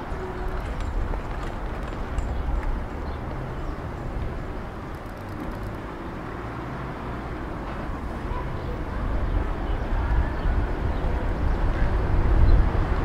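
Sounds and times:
low street rumble: 0.0 - 13.0
faint rapid ticks: 4.2 - 5.9.

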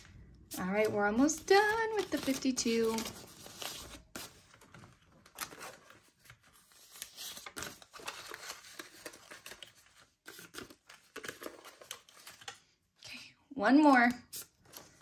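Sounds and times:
paper banknotes rustling: 0.6 - 12.6.

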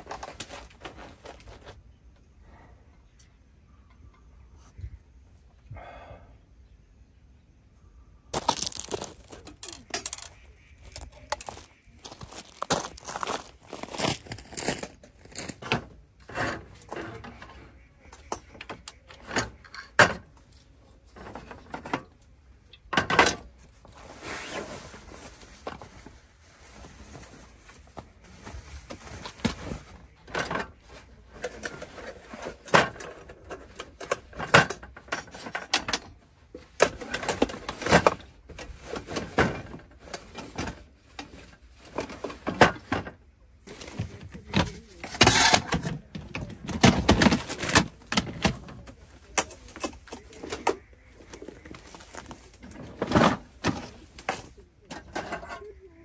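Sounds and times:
objects clicking and knocking: 8.4 - 13.7, 43.8 - 55.7.

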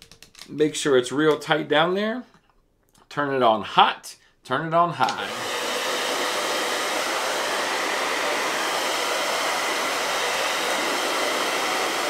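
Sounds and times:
hair dryer running: 5.0 - 12.0.

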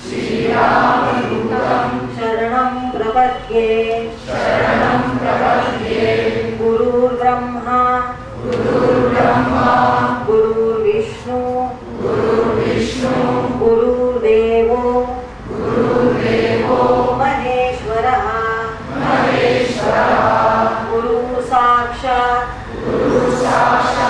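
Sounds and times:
group chanting in unison: 0.0 - 2.5, 4.1 - 7.1, 8.3 - 10.8, 11.8 - 14.2, 14.8 - 17.5, 18.6 - 24.0.

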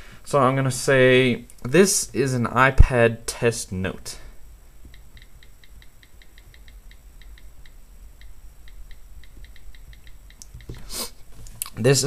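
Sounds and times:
light touchscreen typing clicks: 4.9 - 10.8.

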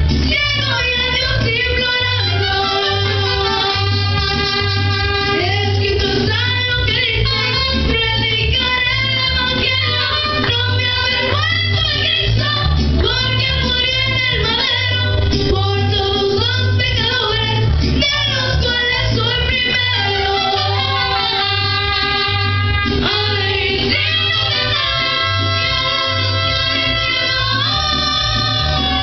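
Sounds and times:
pulsing bass line: 0.0 - 29.0
trumpets: 0.3 - 15.4, 18.0 - 29.0
women singing together: 15.8 - 29.0.

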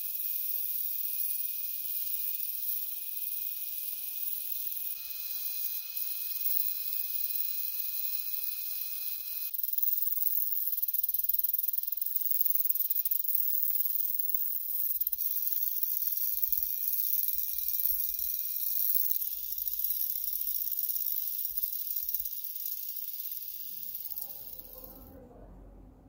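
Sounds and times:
faint drill motor whine: 0.0 - 9.6, 15.0 - 25.1.

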